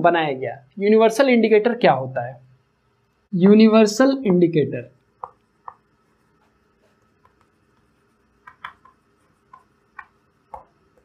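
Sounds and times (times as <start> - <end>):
chalk on blackboard: 5.2 - 11.0.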